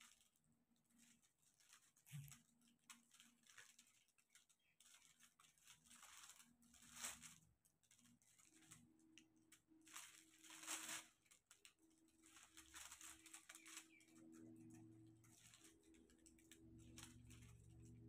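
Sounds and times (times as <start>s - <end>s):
plastic film rustling: 0.0s - 18.0s
faint low hum: 5.9s - 18.0s.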